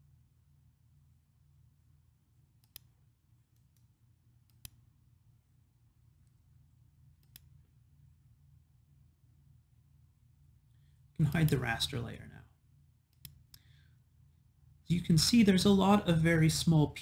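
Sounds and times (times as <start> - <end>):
low steady hum: 0.0 - 17.0
computer mouse clicks: 2.6 - 4.8, 7.2 - 7.6, 13.1 - 13.7.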